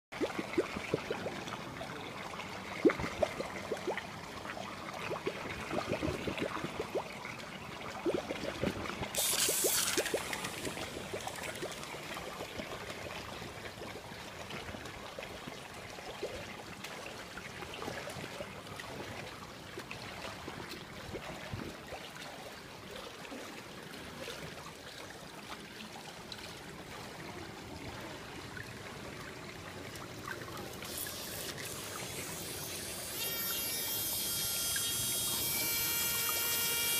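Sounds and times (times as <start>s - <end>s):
pool water trickling and lapping: 0.1s - 36.9s
high electric motor whine: 31.1s - 36.9s.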